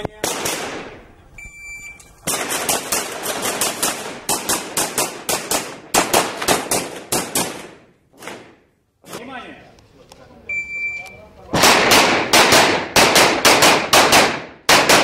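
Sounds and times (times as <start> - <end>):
pistol shots: 0.1 - 1.0, 2.2 - 8.6, 11.5 - 15.0
shot timer beep: 1.4 - 2.1, 10.5 - 11.2.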